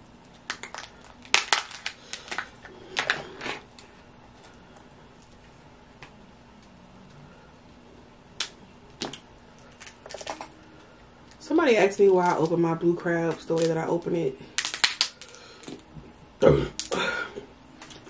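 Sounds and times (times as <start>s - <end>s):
crab shells cracking and snapping: 0.2s - 3.2s, 8.4s - 10.5s, 14.6s - 15.9s, 16.7s - 17.0s.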